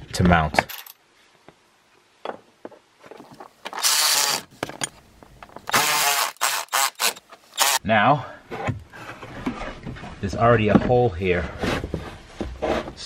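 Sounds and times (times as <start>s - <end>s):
cordless electric ratchet running: 3.8s - 4.5s, 5.7s - 7.8s.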